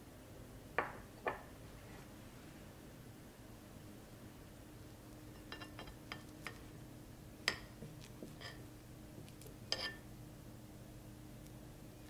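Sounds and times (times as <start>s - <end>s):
cutlery clinking on ceramic plate: 9.7s - 10.0s.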